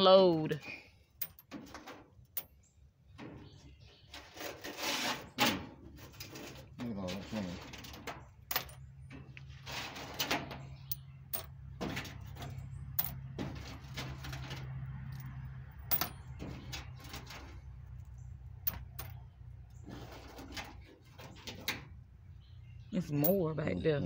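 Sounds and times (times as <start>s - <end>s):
coins clinking on metal: 1.2s - 1.5s, 8.5s - 8.8s, 10.9s - 11.5s, 13.0s - 13.8s, 15.1s - 16.2s.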